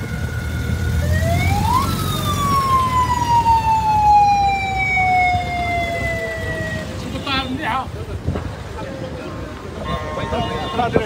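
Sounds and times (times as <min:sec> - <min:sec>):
car engines running low: 0:00.0 - 0:07.2
siren wailing: 0:00.9 - 0:07.0.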